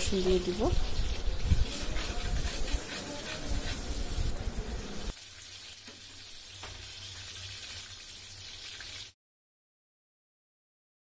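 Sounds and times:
onions sizzling in oil: 0.0s - 9.2s
spatula scraping pot: 0.2s - 4.2s.

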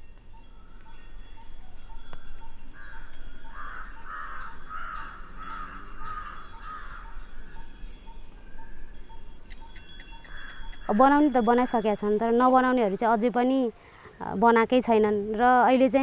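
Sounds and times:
chime-like background music: 0.0s - 12.5s
crow cawing: 2.8s - 7.2s, 10.2s - 10.9s.

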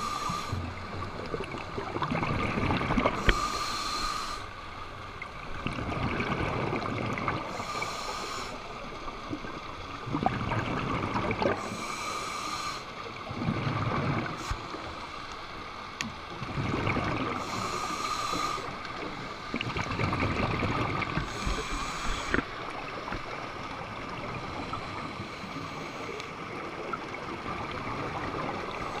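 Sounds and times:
regulator hiss on inhale: 0.0s - 1.1s, 3.1s - 5.0s, 7.4s - 9.2s, 11.5s - 13.2s, 14.3s - 15.6s, 17.3s - 19.8s, 21.0s - 23.4s, 24.1s - 26.5s, 28.3s - 29.0s
bubbling exhale underwater: 1.4s - 3.5s, 10.0s - 11.7s, 16.4s - 17.6s.

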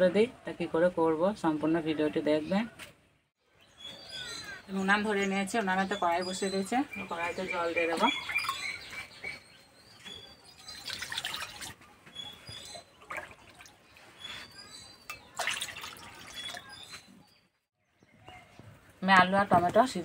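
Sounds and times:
birds chirping: 1.5s - 20.0s
water pouring into metal pot: 10.8s - 11.7s, 15.2s - 16.7s.

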